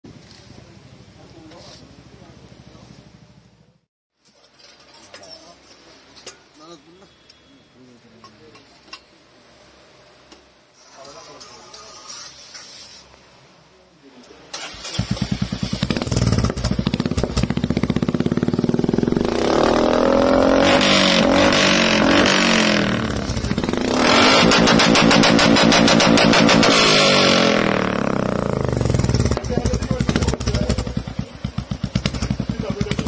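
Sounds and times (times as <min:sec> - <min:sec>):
motorcycle engine starting and idling: 0:14.5 - 0:33.0
engine revving: 0:14.6 - 0:33.0.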